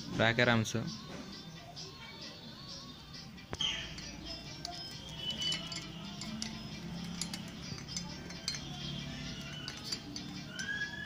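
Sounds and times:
background music: 0:00.0 - 0:11.0
light metal clicks: 0:03.5 - 0:10.8.

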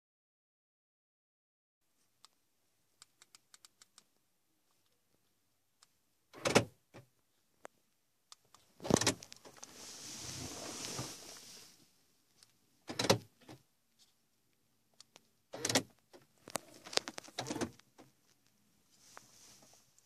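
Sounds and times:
hiss: 0:09.7 - 0:11.8.

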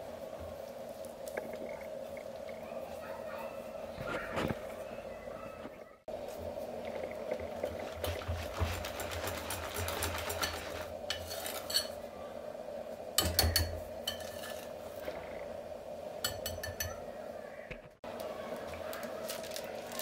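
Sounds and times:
whisk scraping in ceramic bowl: 0:07.6 - 0:11.9.

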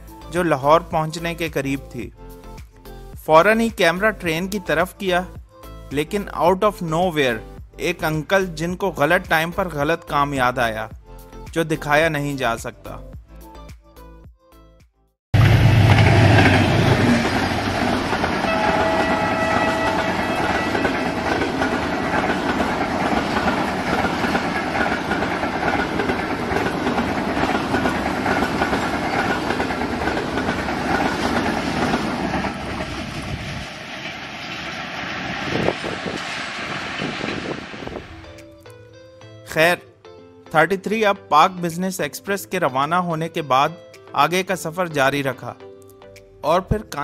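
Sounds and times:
train horn chord: 0:15.4 - 0:25.2
train wheels clattering on rails: 0:15.4 - 0:38.2
diesel locomotive passing: 0:15.4 - 0:38.5.

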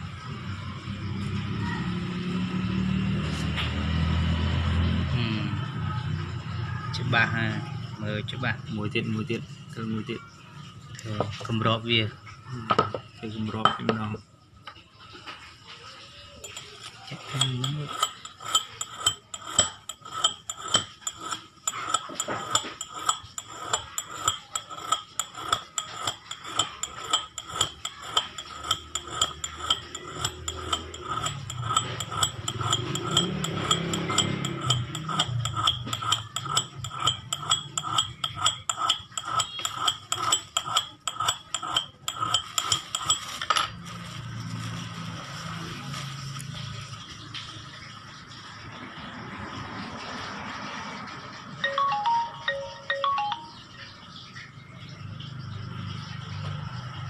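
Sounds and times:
metal rod tapping bronze cup: 0:13.6 - 0:14.1, 0:16.4 - 0:43.7.

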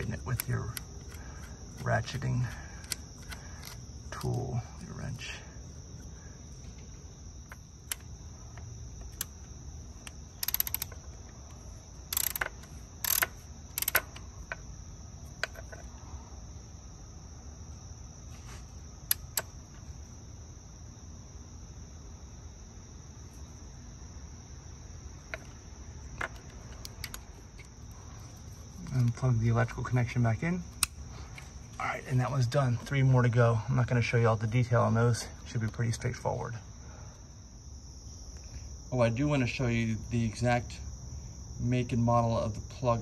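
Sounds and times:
tool handling clicks: 0:00.0 - 0:04.4, 0:10.0 - 0:11.3, 0:12.1 - 0:14.6, 0:19.1 - 0:19.5, 0:26.1 - 0:27.7
crickets chirping: 0:00.0 - 0:43.0
ratchet wrench clicking: 0:10.0 - 0:11.1, 0:12.1 - 0:14.2.

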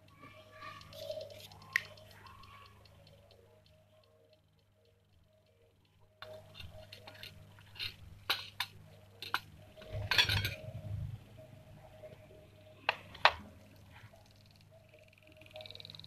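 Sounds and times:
clay pots clinking on steel plate: 0:06.3 - 0:10.6.

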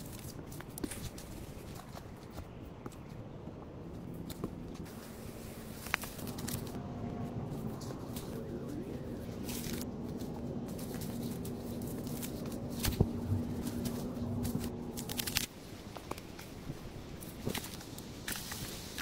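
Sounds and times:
faint low hum: 0:02.4 - 0:17.4
moss tearing off log: 0:11.9 - 0:15.5.

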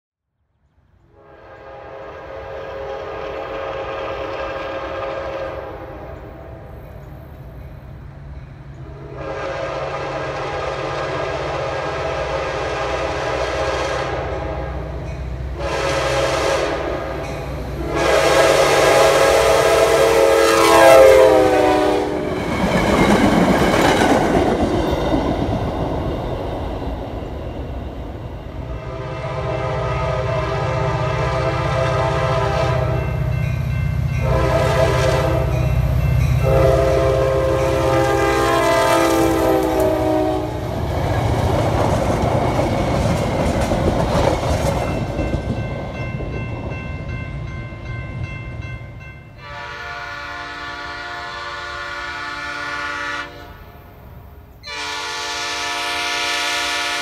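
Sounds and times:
train passing rush: 0:00.9 - 0:57.0
locomotive rumble: 0:01.0 - 0:52.2
train horn blasts: 0:01.1 - 0:06.8, 0:08.8 - 0:22.5, 0:28.6 - 0:41.0, 0:49.4 - 0:54.0, 0:54.6 - 0:57.0.

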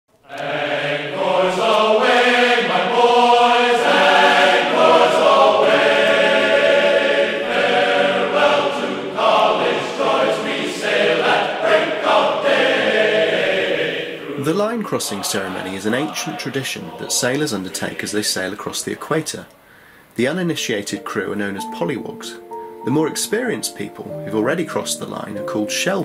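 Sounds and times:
choir singing: 0:00.2 - 0:19.2.

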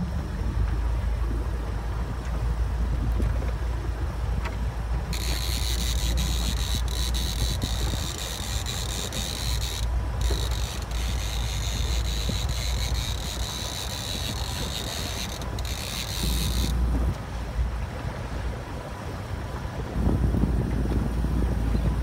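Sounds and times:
outboard motor running: 0:00.0 - 0:22.0
wind and water noise: 0:00.0 - 0:22.0
fishing reel ratcheting click: 0:05.1 - 0:16.8.

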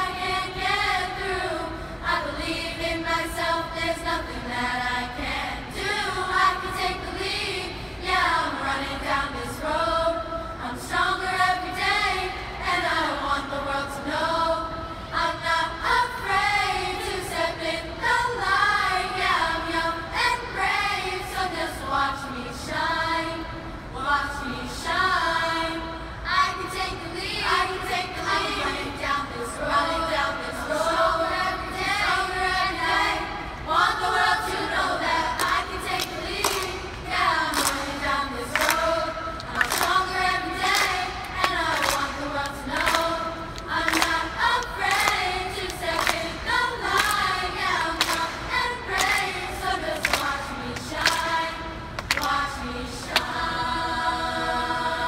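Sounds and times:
girls' chorus singing: 0:00.0 - 0:55.0
singers clapping in time: 0:34.5 - 0:54.8.

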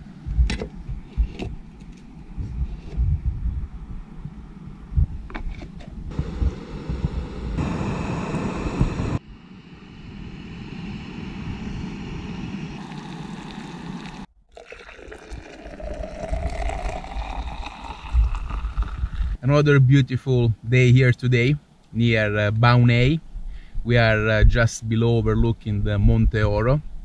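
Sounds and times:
wind rumbling on microphone: 0:00.0 - 0:14.3, 0:15.8 - 0:19.4
gas stove hissing: 0:06.1 - 0:14.3
hot water pouring into glass: 0:12.8 - 0:19.4.

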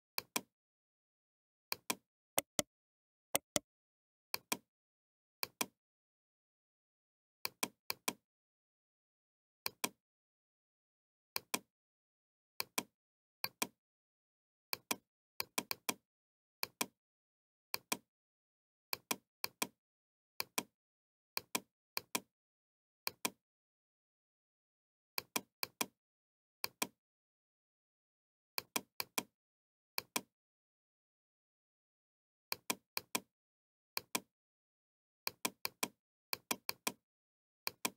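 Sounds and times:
computer mouse button clicks: 0:02.4 - 0:02.6, 0:03.4 - 0:03.6.

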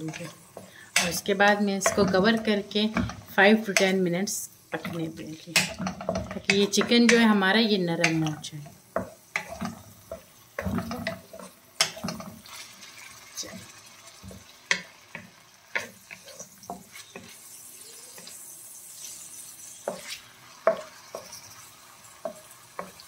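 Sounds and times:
wooden spatula scraping a pan: 0:00.0 - 0:03.9, 0:08.6 - 0:23.0
oil sizzling: 0:00.0 - 0:23.0
spatula knocking against pan: 0:05.6 - 0:07.4.

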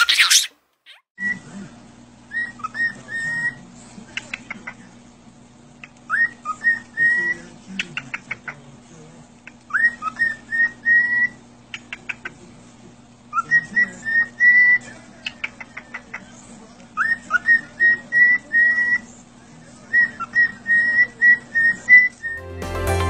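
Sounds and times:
cockatiel whistling a tune: 0:02.3 - 0:03.6, 0:06.1 - 0:07.4, 0:09.7 - 0:11.4, 0:13.3 - 0:14.8, 0:19.9 - 0:22.4.

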